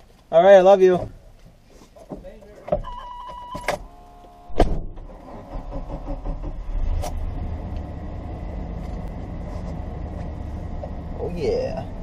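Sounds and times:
heavy thump in truck cab: 4.5s - 5.1s.

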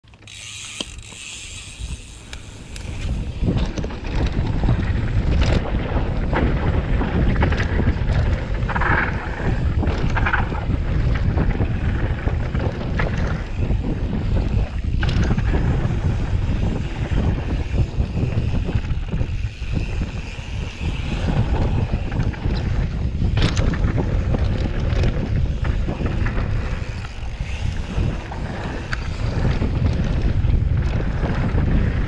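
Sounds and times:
bike rattling: 0.0s - 32.0s
wind buffeting microphone: 0.3s - 32.0s.

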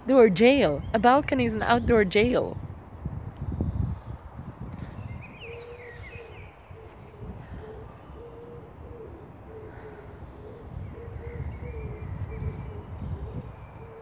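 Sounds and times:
wind rumbling on microphone: 0.0s - 14.0s
bird hooting: 5.2s - 14.0s.

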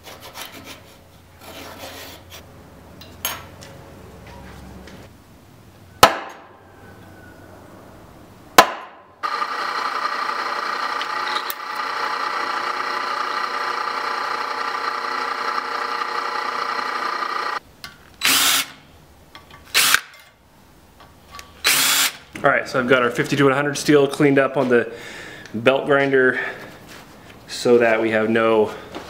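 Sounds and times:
cordless drill burst: 9.2s - 17.6s, 18.2s - 18.8s, 19.7s - 20.0s, 21.6s - 22.2s
drill press drilling metal: 9.2s - 17.6s.

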